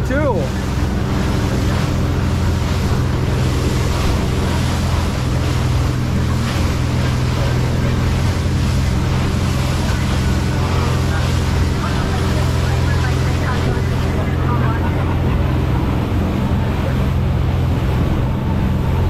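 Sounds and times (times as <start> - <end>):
motorboat engine humming: 0.0 - 19.0
water rushing and splashing: 0.0 - 19.0.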